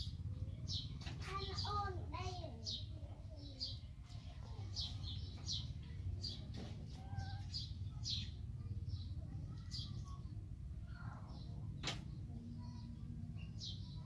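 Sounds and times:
small bird chirping: 0.0 - 14.0.

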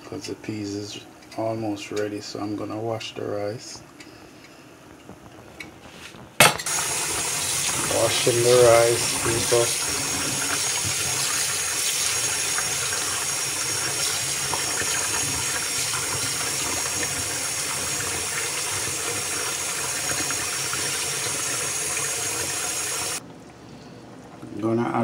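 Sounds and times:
tap water running into bowl: 6.5 - 23.2.

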